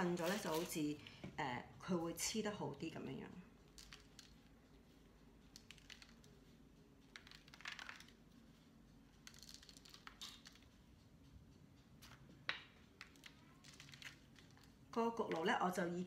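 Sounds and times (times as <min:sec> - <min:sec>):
fingers rustling and clicking: 0:03.6 - 0:08.5, 0:09.1 - 0:10.9, 0:12.0 - 0:15.6.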